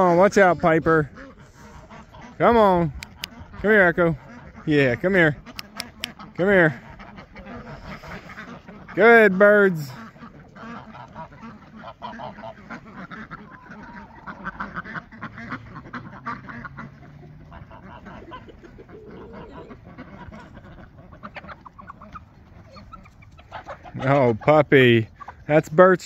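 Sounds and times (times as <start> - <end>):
ducks quacking: 0.0 - 26.0.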